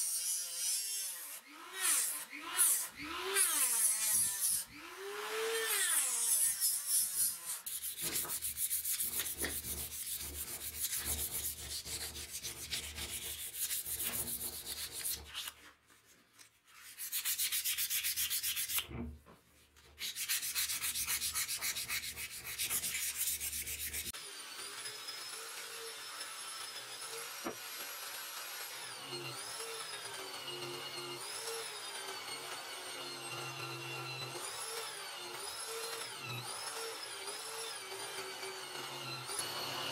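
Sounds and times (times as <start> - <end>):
sandpaper rubbing: 6.6 - 19.0, 19.9 - 24.1
angle grinder whine: 24.2 - 39.9.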